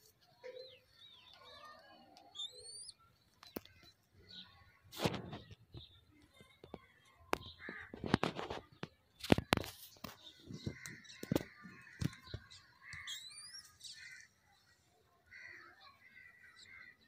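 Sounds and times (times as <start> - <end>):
bird calls: 0.3 - 14.7
high rising bird chirp: 2.3 - 3.1, 12.5 - 14.2.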